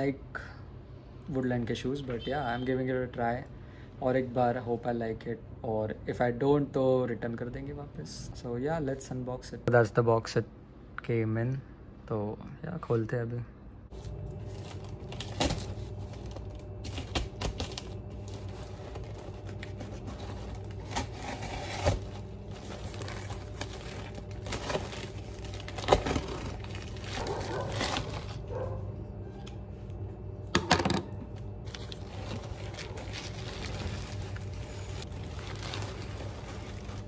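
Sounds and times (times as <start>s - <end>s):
steady low hum: 3.4s - 37.0s
paper and plastic rustling: 13.9s - 28.7s, 31.6s - 37.0s.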